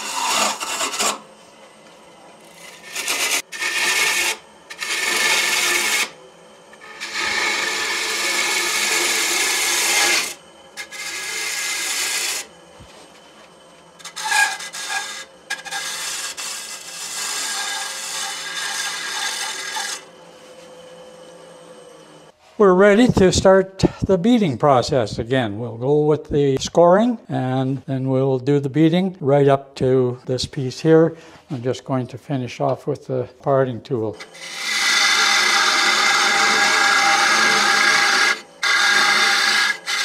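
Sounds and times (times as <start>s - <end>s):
tool rasping on spinning wood: 0.0s - 1.4s, 2.4s - 22.3s, 34.1s - 40.0s
lathe humming: 0.0s - 22.4s, 34.0s - 40.0s.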